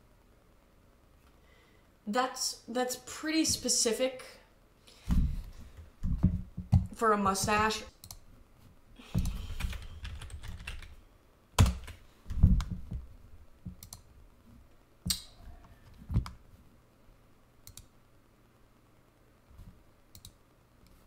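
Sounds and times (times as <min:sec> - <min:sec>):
computer keyboard typing: 0:09.2 - 0:11.0, 0:11.6 - 0:12.0, 0:13.7 - 0:14.0.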